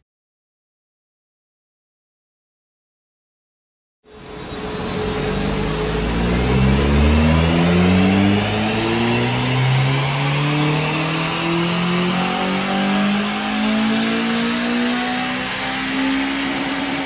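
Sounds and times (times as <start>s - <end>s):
car engine revving at full throttle: 4.2s - 17.0s.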